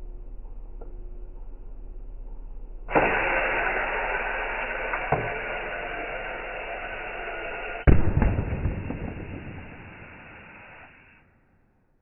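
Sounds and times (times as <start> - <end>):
compressed air hissing: 2.9 - 11.2
rush of air and water spray: 2.9 - 11.2.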